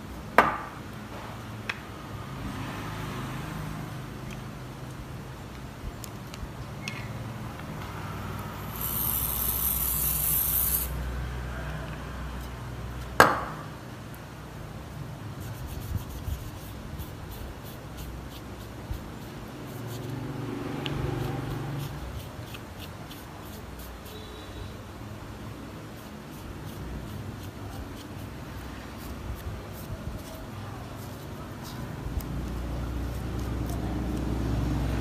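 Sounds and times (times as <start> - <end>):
aerosol can spraying: 8.6 - 11.0
rubbing phone keypad with tissue: 15.3 - 20.2, 25.9 - 34.2.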